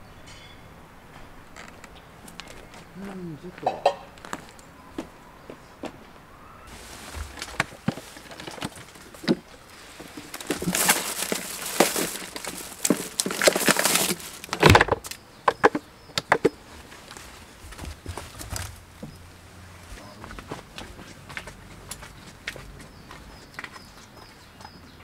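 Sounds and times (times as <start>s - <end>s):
plastic bags rustling: 6.7s - 15.2s
contents clunking in cooler: 6.7s - 16.6s.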